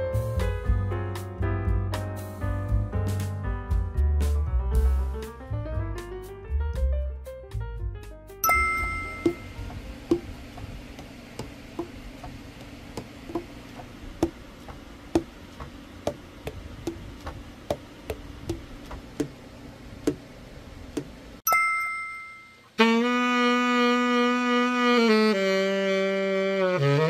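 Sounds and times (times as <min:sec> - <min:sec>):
short chime: 0:08.4 - 0:09.6, 0:21.5 - 0:22.7.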